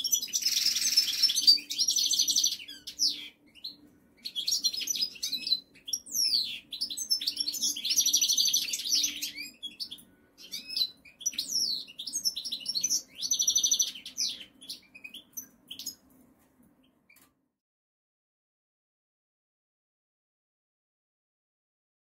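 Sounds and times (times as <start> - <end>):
goldfinch twittering song: 0.0 - 16.0.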